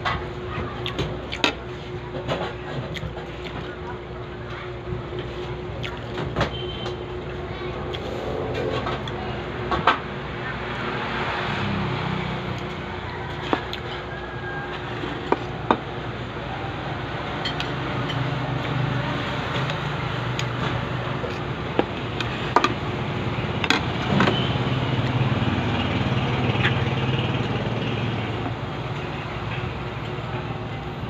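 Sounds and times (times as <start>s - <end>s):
passing vehicle engine hum: 7.1s - 31.0s.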